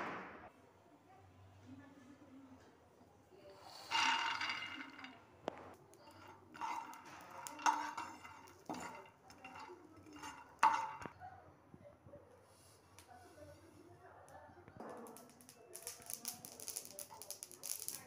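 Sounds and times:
peanuts stirred in pan: 3.4s - 11.2s, 15.1s - 18.0s
peanuts clattering into pan: 3.6s - 11.2s, 15.0s - 18.0s
utensil knocking pan: 6.1s - 11.1s.

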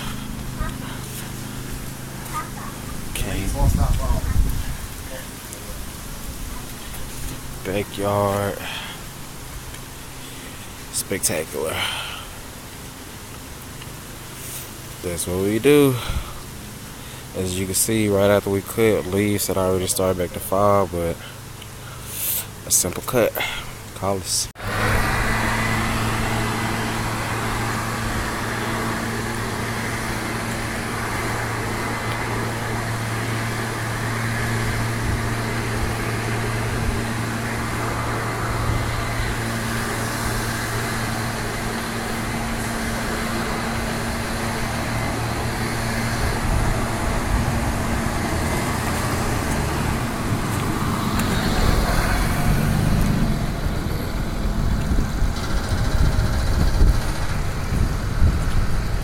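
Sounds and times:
road and wind noise: 0.0s - 59.0s
vehicle engine hum: 0.0s - 59.0s.

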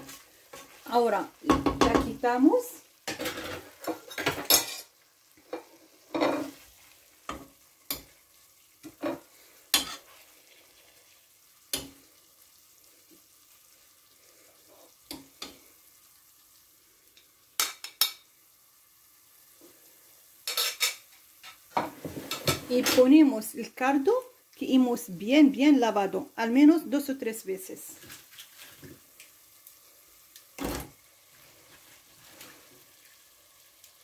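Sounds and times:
frying oil sizzling: 0.0s - 34.0s
metal utensil scraping pot: 5.5s - 6.7s.

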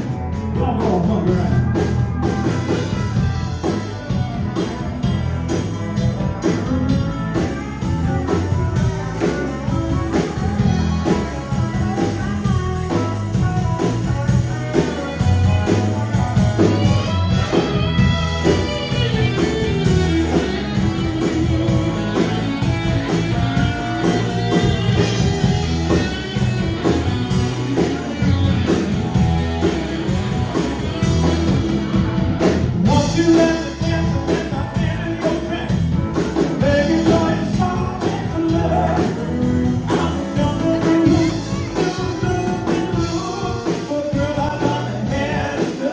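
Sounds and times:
live rock band playing: 0.0s - 45.9s
person singing: 0.4s - 1.8s, 32.8s - 45.9s.

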